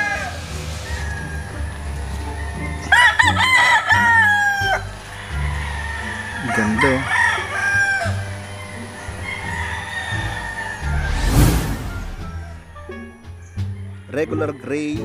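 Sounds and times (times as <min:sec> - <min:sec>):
rooster crowing: 0:00.0 - 0:14.9.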